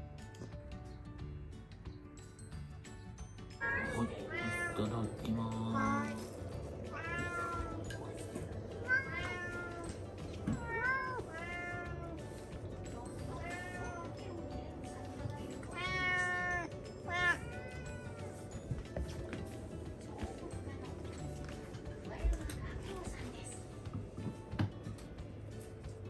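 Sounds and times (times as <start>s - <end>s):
cats meowing: 3.6s - 20.4s.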